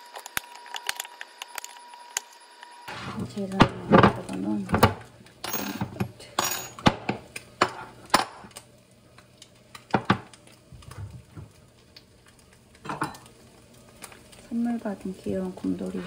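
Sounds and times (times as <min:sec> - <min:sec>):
glass bowl and lid clinking: 0:12.8 - 0:13.2.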